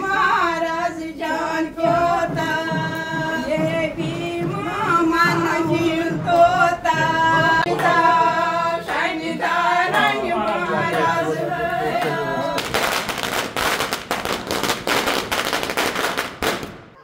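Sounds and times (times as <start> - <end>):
women singing: 0.0 - 13.4
firecrackers crackling: 11.6 - 17.0.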